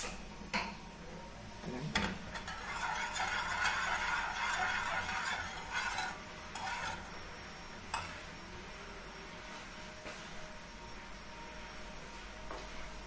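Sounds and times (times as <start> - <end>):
spoon scraping metal saucepan: 2.3 - 7.1.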